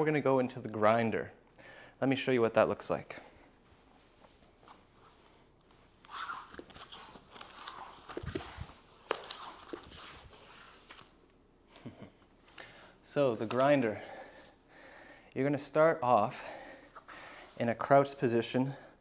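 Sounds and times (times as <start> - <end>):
hands and feet shuffling on floor: 3.6 - 11.2.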